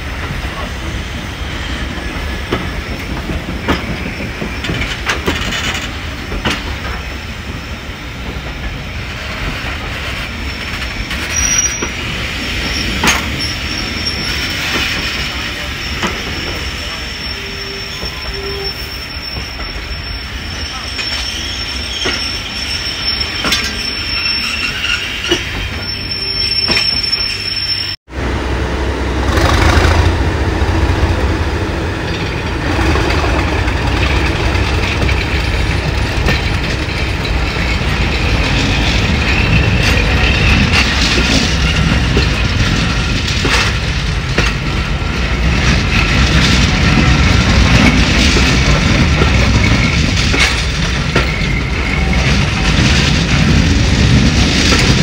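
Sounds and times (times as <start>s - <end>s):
diesel locomotive engine working hard: 0.0s - 20.0s, 25.2s - 55.0s
train wheels on rails: 0.0s - 55.0s
wheels clicking over rail joints: 2.5s - 7.1s, 32.1s - 55.0s.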